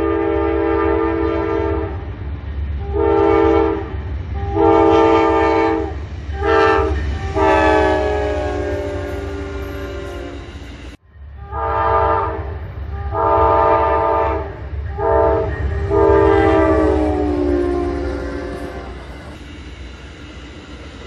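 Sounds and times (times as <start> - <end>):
locomotive air horn blowing: 0.0 - 2.1, 2.8 - 10.6, 11.4 - 19.1
low rumble of train: 0.0 - 21.0.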